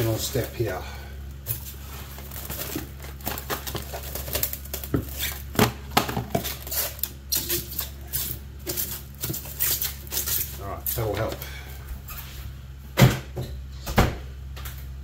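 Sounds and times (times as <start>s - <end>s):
plastic cling wrap crinkling: 1.3s - 11.4s.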